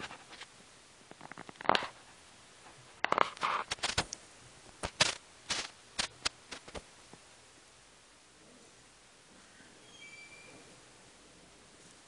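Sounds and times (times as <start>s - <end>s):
scratchy rustles on fabric: 1.3s - 4.1s, 4.8s - 6.9s.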